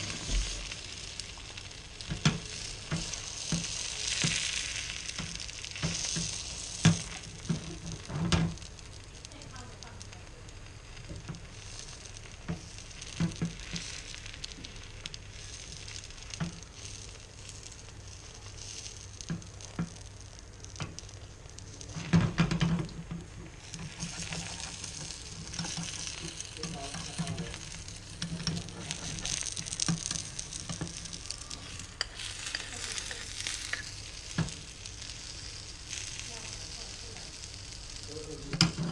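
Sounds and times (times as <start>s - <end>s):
crackling pops: 0.0s - 38.9s
egg sizzling in oil: 0.0s - 38.9s.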